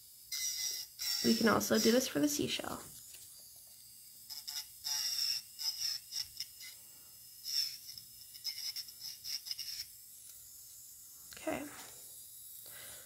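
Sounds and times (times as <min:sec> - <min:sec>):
file scratching acrylic nail: 0:00.3 - 0:02.3, 0:04.3 - 0:06.8, 0:07.4 - 0:10.0.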